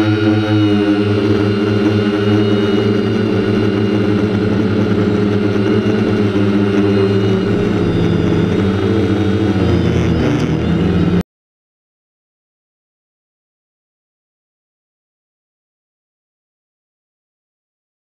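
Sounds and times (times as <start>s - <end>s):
drone propellers humming: 0.0s - 11.2s.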